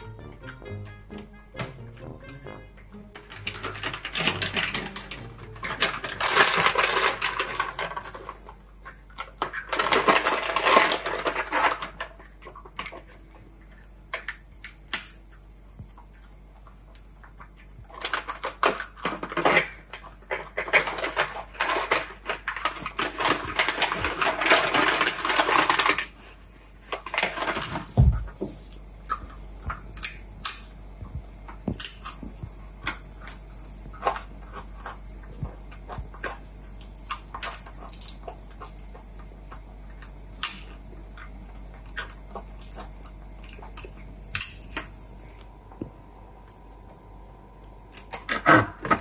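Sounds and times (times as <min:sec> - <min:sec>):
plastic bag crinkling: 0:03.2 - 0:08.5, 0:09.4 - 0:12.2, 0:20.6 - 0:28.4.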